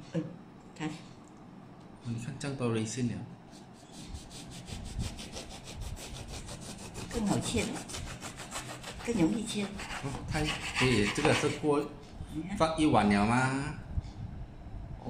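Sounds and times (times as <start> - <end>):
bread knife sawing through crust: 3.8 - 11.7.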